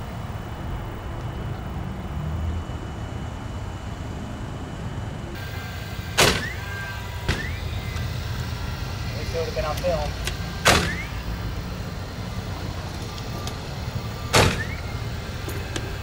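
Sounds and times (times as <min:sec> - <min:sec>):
sharp bangs with metallic ring: 0:06.2 - 0:06.6, 0:10.6 - 0:11.1, 0:14.3 - 0:14.8.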